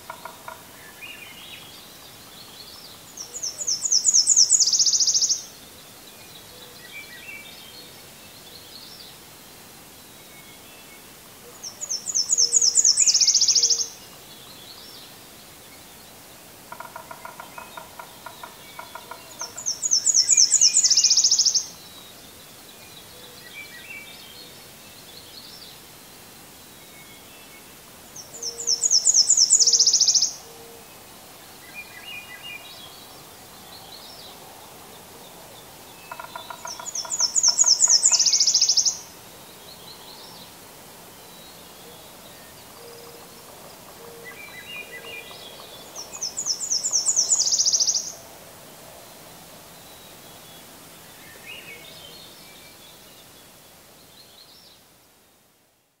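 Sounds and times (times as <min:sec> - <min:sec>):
warbler song with trill: 0:00.0 - 0:09.2, 0:10.2 - 0:16.2, 0:17.3 - 0:25.6, 0:27.0 - 0:34.3, 0:36.1 - 0:40.5, 0:41.1 - 0:48.2
faint songbirds singing: 0:00.0 - 0:56.0.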